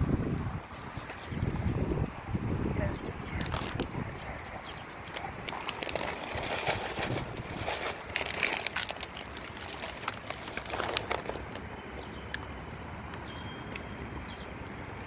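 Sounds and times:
plastic bag crinkling: 0:03.4 - 0:04.3, 0:04.9 - 0:11.7
pellets clicking on concrete: 0:05.1 - 0:11.5.

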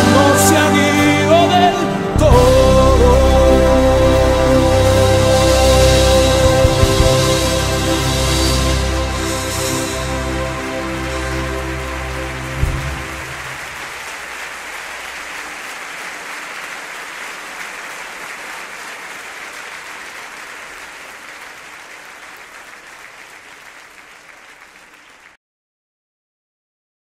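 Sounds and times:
song ending: 0:00.0 - 0:14.1
audience applause: 0:05.4 - 0:25.4.

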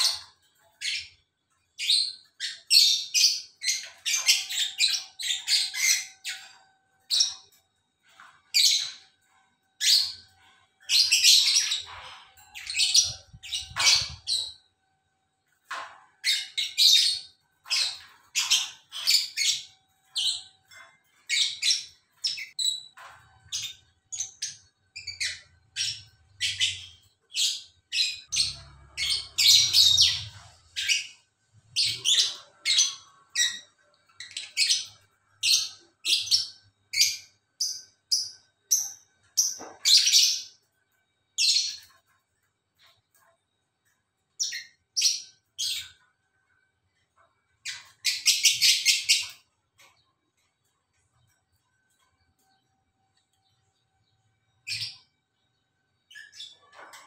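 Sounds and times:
lovebirds chattering: 0:09.8 - 0:14.5.

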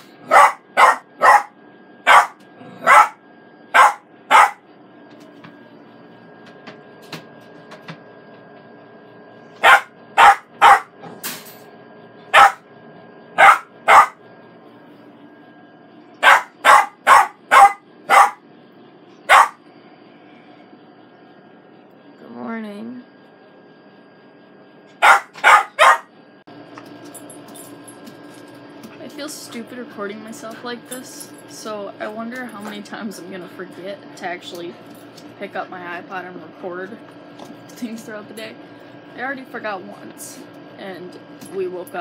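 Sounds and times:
puppy barking: 0:00.2 - 0:03.2, 0:03.8 - 0:04.6, 0:09.6 - 0:11.0, 0:12.3 - 0:12.6, 0:13.4 - 0:14.2, 0:16.2 - 0:18.4, 0:19.3 - 0:19.6, 0:25.0 - 0:26.1.

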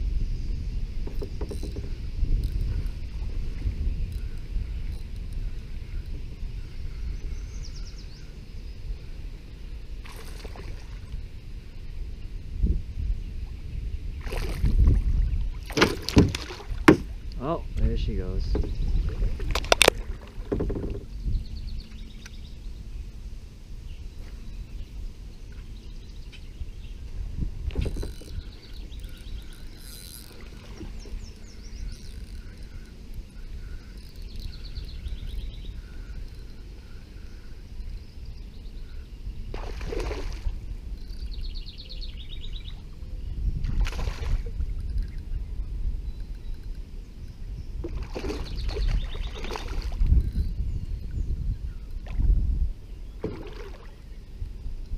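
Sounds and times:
low outdoor rumble: 0:00.0 - 0:54.9
faint bird chirps: 0:04.0 - 0:09.2, 0:27.8 - 0:43.7, 0:44.7 - 0:52.0.

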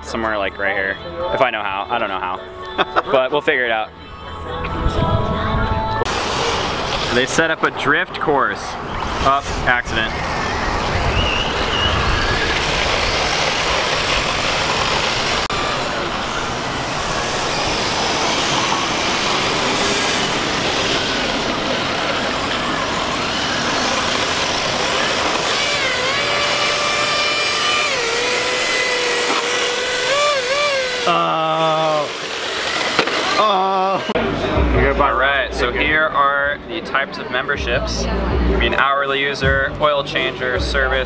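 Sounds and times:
motor whines: 0:04.2 - 0:07.4, 0:08.8 - 0:34.3.

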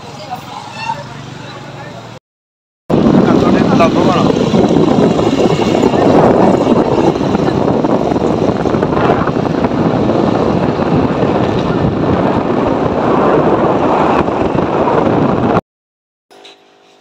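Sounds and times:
wind buffeting microphone: 0:02.9 - 0:15.6.

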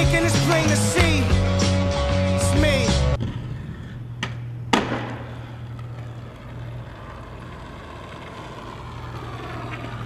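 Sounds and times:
skate wheels rolling rumble: 0:00.0 - 0:10.0
skater landing smack: 0:04.2 - 0:05.3
skate click: 0:04.2 - 0:10.0.

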